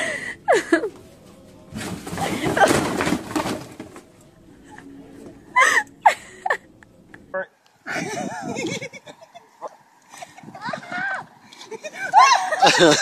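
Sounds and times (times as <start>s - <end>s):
cardboard boxes crashing onto floor: 1.7s - 4.1s.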